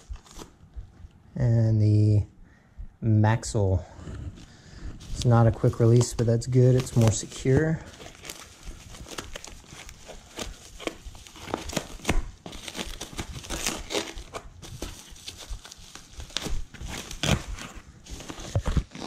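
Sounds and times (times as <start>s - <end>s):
foam and plastic ripping: 5.0s - 19.0s
plastic wrap crinkling: 5.0s - 19.0s.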